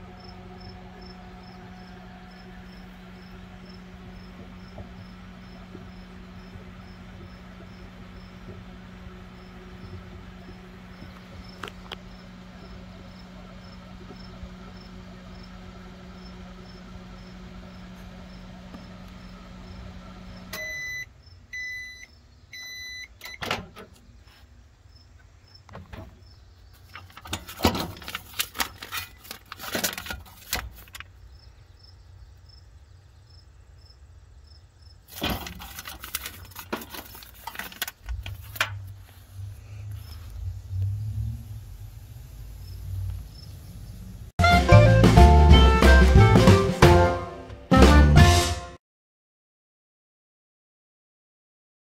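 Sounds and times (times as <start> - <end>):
microwave humming: 0.0 - 24.2, 25.6 - 33.2, 34.2 - 47.7
microwave beeping: 19.9 - 23.8
popcorn bag crinkling: 26.8 - 31.1, 35.1 - 39.2.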